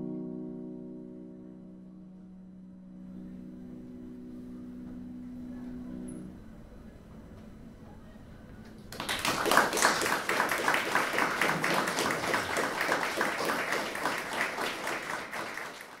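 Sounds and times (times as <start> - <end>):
audience applause: 8.8 - 16.0.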